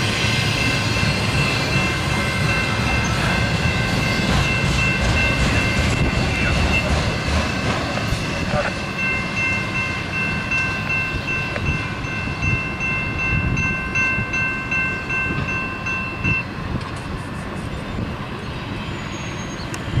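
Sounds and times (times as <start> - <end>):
train wheels clacking over rails: 0.0 - 12.2
steady high ringing tone: 0.0 - 16.7.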